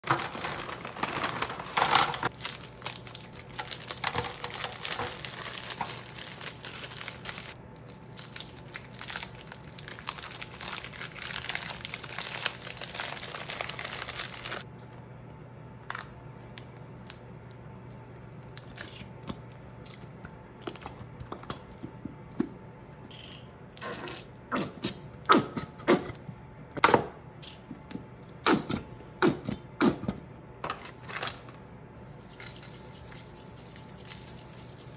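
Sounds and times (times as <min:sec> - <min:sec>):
plastic bags crinkling: 0:00.0 - 0:14.7.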